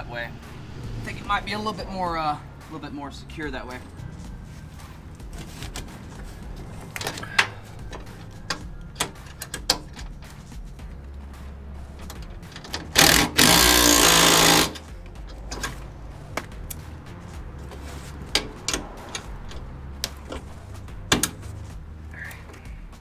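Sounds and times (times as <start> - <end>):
wrench clicking on metal: 6.9 - 10.2
impact driver hammering a bolt: 12.9 - 14.8.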